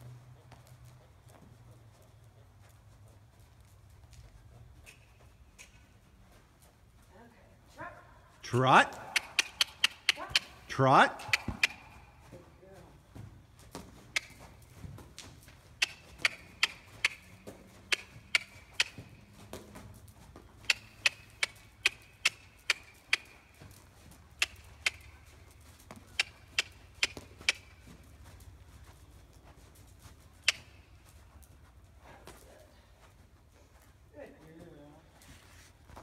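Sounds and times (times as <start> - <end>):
tongue clicking: 8.9 - 10.6, 15.8 - 17.3, 17.9 - 19.0, 20.6 - 23.3.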